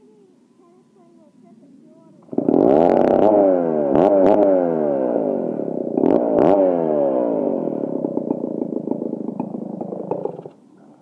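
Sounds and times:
chainsaw engine revving and idling: 2.2s - 10.5s.

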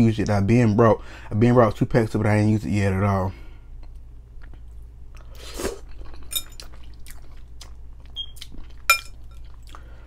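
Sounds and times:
chewing with wet mouth clicks: 3.8s - 5.3s, 5.9s - 10.0s
metal fork clinking on glass bowl: 6.3s - 6.6s, 8.9s - 9.2s.

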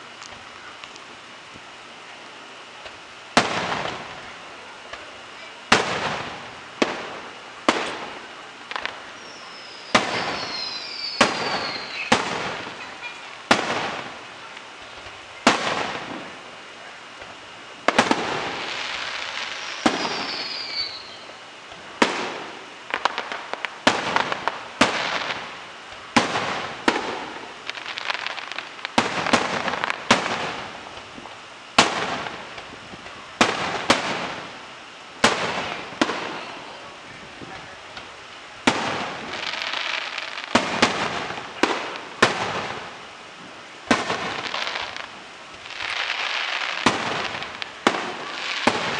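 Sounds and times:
fireworks crackling: 0.0s - 48.9s
falling firework whistles: 8.7s - 14.1s, 17.9s - 21.4s, 43.9s - 48.9s.

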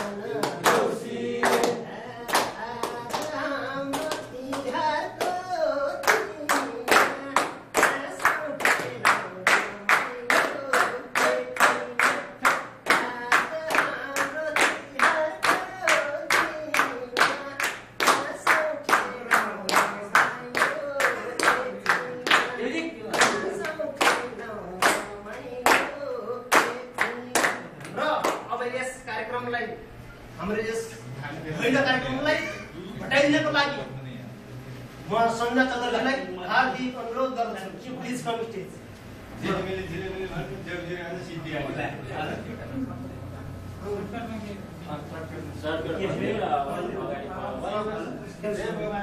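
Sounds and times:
hands clapping: 0.0s - 5.4s, 6.0s - 28.5s
people singing along: 0.0s - 27.8s.

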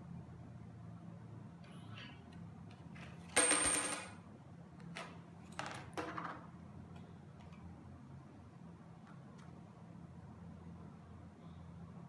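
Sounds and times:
coin clinking on glass: 3.4s - 4.2s.

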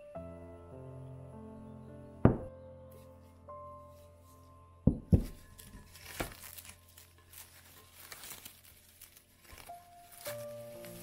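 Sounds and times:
soft background music: 0.0s - 11.0s
sharp knocks: 2.3s - 2.5s
cling film crinkling: 5.2s - 11.0s.

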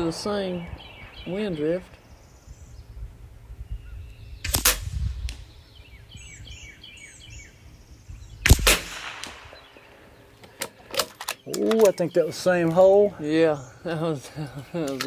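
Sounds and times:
bird chirping: 0.0s - 15.0s
rifle shots: 4.4s - 5.0s, 8.4s - 9.7s.

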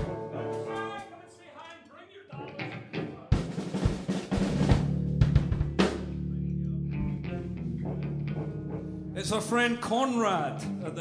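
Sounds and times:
rock drum kit playing: 0.0s - 1.0s, 2.6s - 9.5s
electric bass and guitar: 4.8s - 11.0s.

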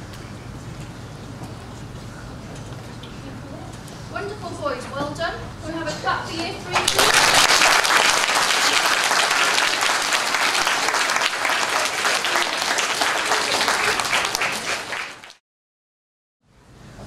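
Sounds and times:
crowd clapping: 6.7s - 15.4s.

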